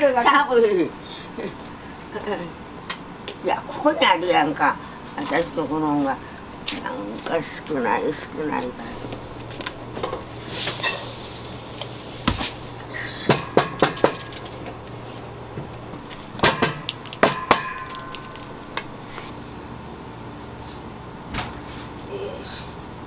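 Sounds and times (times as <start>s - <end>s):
dishes and utensils clinking: 10.7s - 11.2s.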